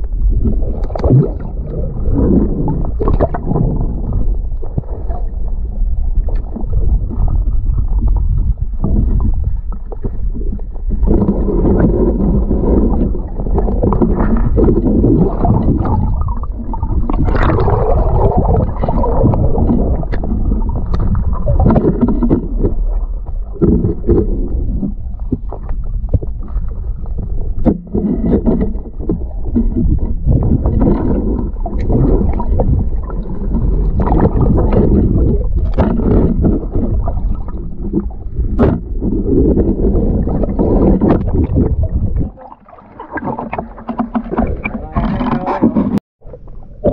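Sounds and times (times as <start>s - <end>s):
muffled underwater rumble: 0.0s - 46.9s
water gurgling: 0.0s - 46.9s.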